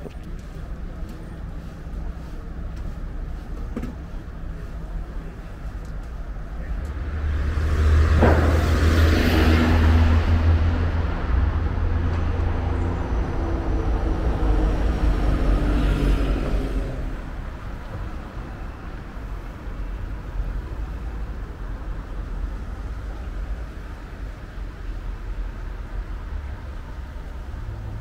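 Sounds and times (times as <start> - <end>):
street ambience: 0.0 - 28.0
cars driving past: 6.1 - 28.0.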